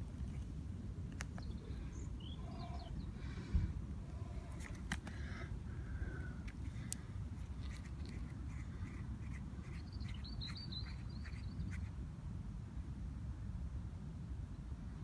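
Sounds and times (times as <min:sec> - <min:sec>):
birds calling: 0:01.2 - 0:07.0, 0:07.6 - 0:11.9
high bird twittering: 0:09.6 - 0:11.9.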